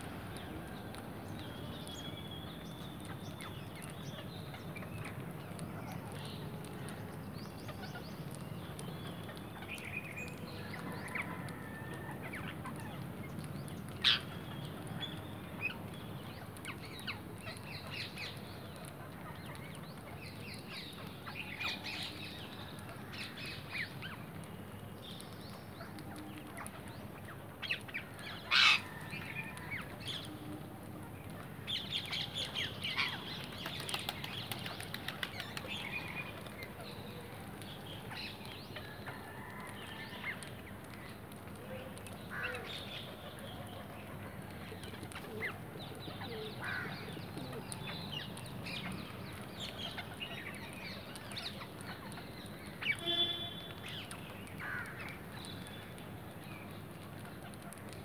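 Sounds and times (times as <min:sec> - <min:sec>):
wings fluttering: 0:33.4 - 0:35.7.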